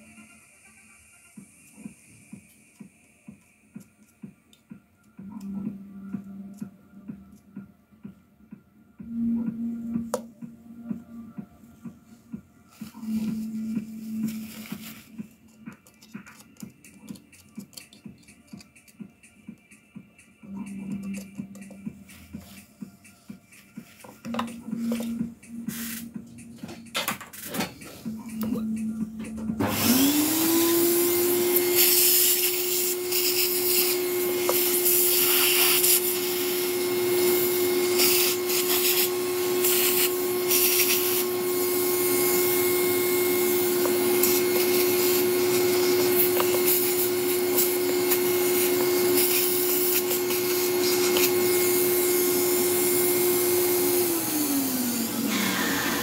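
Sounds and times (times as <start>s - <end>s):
electric air tool whirring: 29.6s - 56.0s
rushing air hiss: 31.6s - 36.6s, 37.4s - 41.3s.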